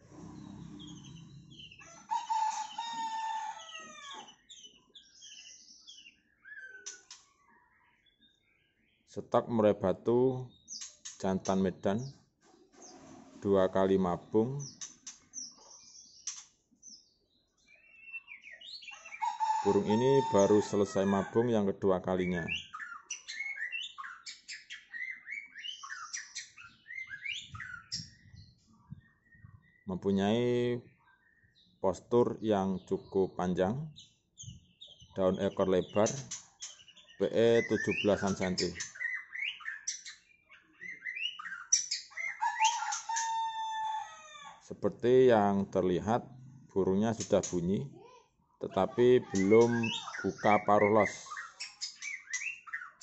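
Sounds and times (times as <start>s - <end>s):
rooster crowing: 1.9s - 4.3s, 19.1s - 21.4s, 42.4s - 44.6s
bird whistling song notes: 22.6s - 29.8s, 49.4s - 53.0s
bird chirping and whistling: 36.6s - 43.3s, 49.3s - 53.0s.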